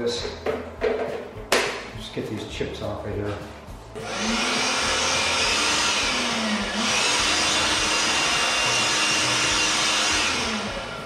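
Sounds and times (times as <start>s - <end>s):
electric blower whining: 4.0s - 11.0s.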